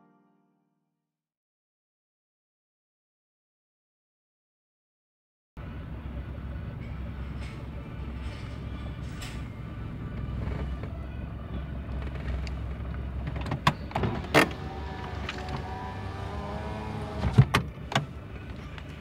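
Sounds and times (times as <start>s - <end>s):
car engine rumble from inside cabin: 5.6s - 19.0s.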